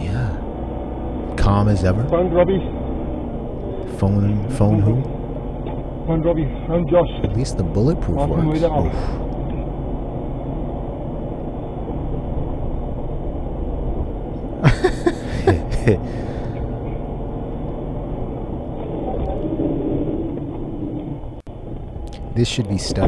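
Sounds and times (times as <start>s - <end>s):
truck engine and road rumble: 0.0s - 23.0s
bursts of laughter: 14.6s - 16.5s.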